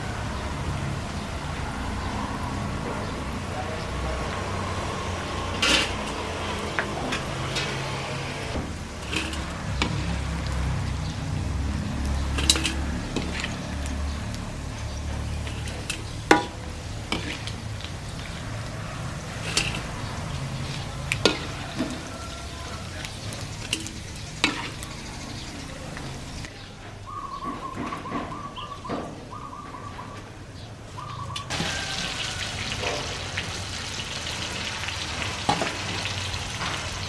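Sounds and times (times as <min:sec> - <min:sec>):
utensils clinking against pots: 0:02.9 - 0:26.5, 0:31.5 - 0:33.6, 0:34.9 - 0:37.0.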